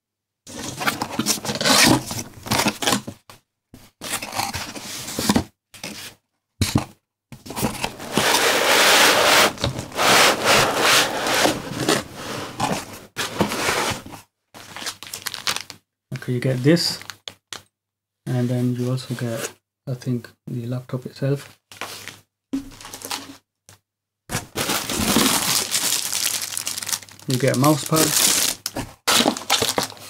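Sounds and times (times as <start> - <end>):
cardboard box flaps scraping: 7.5 - 14.1.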